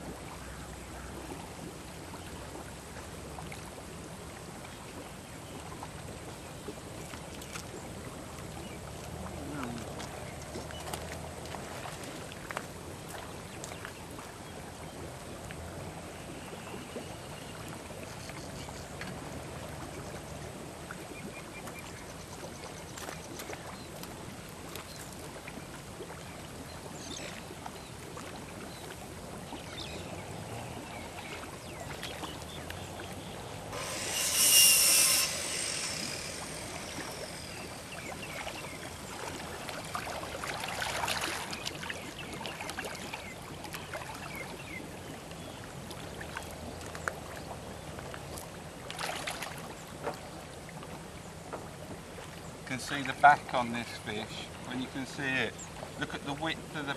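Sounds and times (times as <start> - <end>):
water sloshing and splashing: 8.4 - 14.4, 22.9 - 33.8, 34.9 - 50.9.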